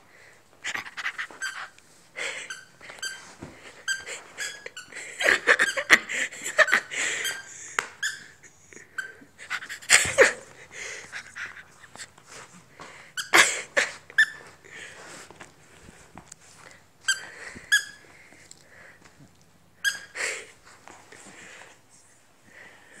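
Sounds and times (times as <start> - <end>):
small dog squeaking: 0.8 - 1.8, 2.4 - 3.2, 3.8 - 4.9, 5.6 - 6.0, 6.6 - 8.4, 14.2 - 14.4, 17.1 - 18.0, 19.8 - 20.2.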